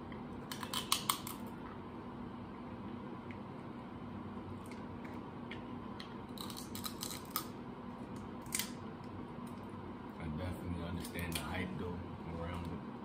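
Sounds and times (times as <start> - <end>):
low room hum: 0.0 - 13.0
crab shells cracking: 0.5 - 1.5, 6.3 - 7.6, 8.4 - 8.8.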